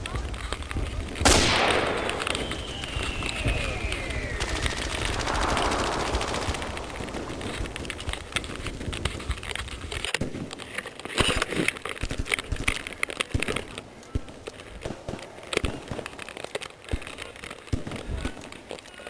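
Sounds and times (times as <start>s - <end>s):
airsoft guns firing: 0.7s - 9.2s.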